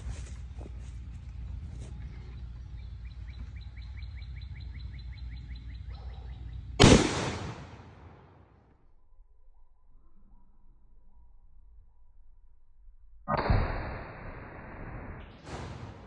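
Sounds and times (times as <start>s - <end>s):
bird trilling chirps: 2.3s - 6.8s
rifle shot echoing: 6.8s - 8.5s.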